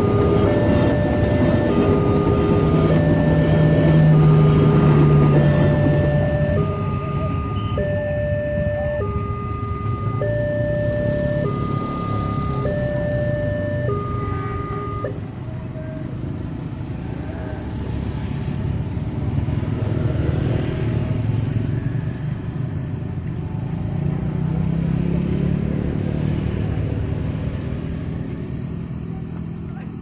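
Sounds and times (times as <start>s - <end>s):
electronic warning tones: 0.0s - 16.3s
motorcycle engines passing: 0.0s - 30.0s.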